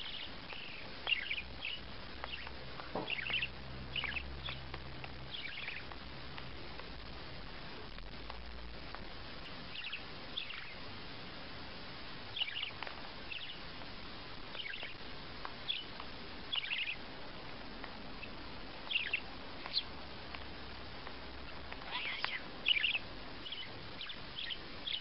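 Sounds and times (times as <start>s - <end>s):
budgerigar chirps: 0.0s - 2.5s, 3.1s - 4.6s, 5.3s - 5.9s, 12.3s - 13.6s, 16.5s - 17.0s, 18.2s - 19.9s, 21.9s - 25.0s
steady background hiss: 0.0s - 25.0s.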